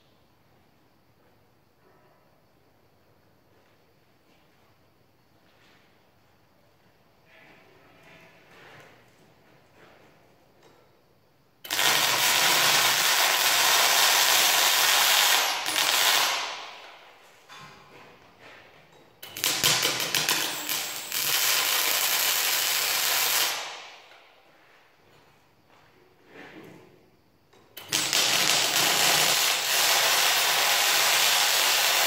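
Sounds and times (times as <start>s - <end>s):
welding arc crackling: 11.7s - 17.1s, 19.2s - 24.1s, 27.8s - 32.0s.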